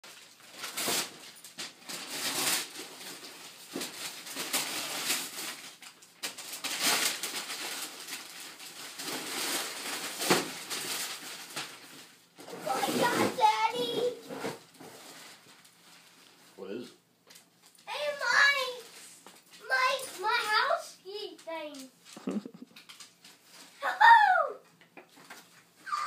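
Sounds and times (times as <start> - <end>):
wrapping paper tearing: 0.1 - 15.8.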